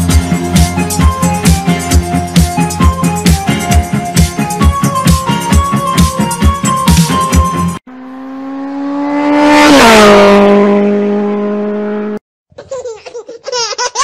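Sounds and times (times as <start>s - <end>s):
car speeding past: 7.9s - 12.2s.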